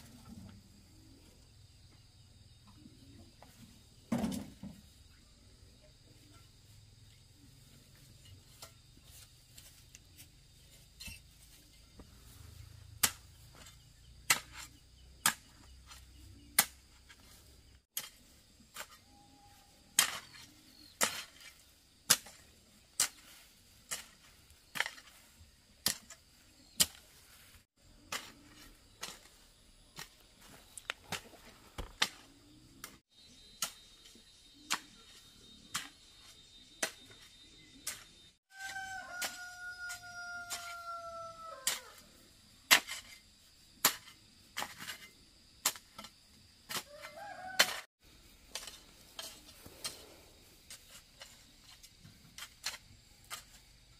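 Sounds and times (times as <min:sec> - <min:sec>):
hoe striking loose soil: 0:12.8 - 0:19.1, 0:19.7 - 0:53.9.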